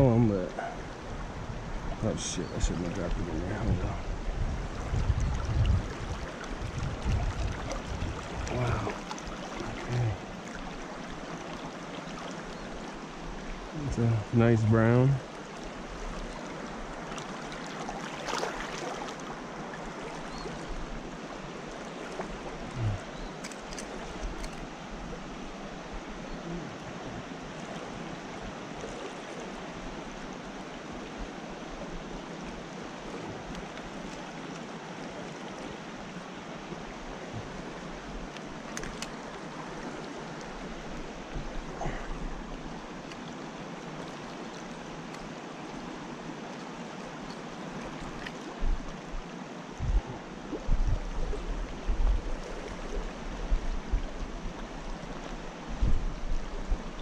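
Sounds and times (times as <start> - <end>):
creek rushing over rocks: 0.0 - 57.0
faint clicks of fishing gear: 23.3 - 24.7, 38.3 - 39.3, 43.0 - 43.3, 45.0 - 45.3, 48.1 - 49.0.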